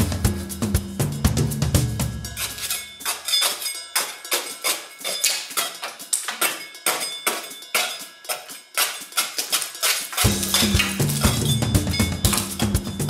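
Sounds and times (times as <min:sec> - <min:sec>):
scraper scraping paint off wall: 0:08.8 - 0:11.4.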